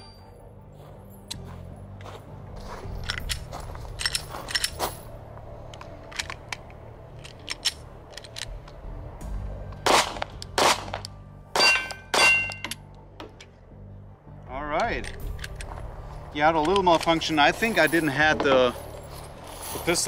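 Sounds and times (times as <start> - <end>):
pistol handling clicks: 3.0 - 4.8, 5.7 - 8.8, 9.7 - 11.2, 14.8 - 15.7
pistol shots: 9.8 - 12.6
steel target ringing: 11.5 - 12.7.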